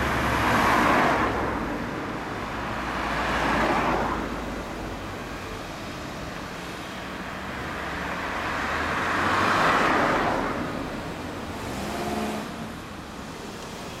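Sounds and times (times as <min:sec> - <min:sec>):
car passing: 0:07.5 - 0:14.0.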